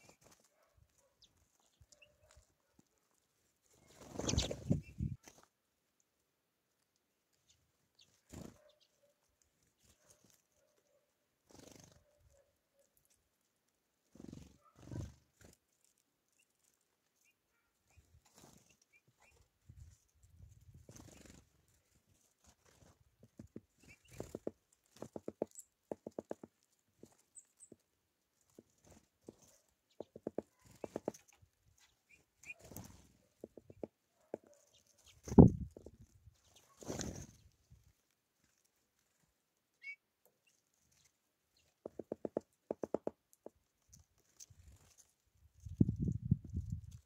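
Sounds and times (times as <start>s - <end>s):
birds pecking on wood: 0.0s - 4.4s, 20.8s - 37.0s, 40.6s - 45.7s
wings fluttering: 0.0s - 5.5s, 7.9s - 13.2s, 14.0s - 17.3s, 17.9s - 39.2s, 40.7s - 47.0s
high bird chirp: 3.9s - 5.2s
woodpecker tapping on wood: 23.2s - 27.8s, 29.3s - 31.3s, 33.3s - 34.6s, 41.7s - 43.6s.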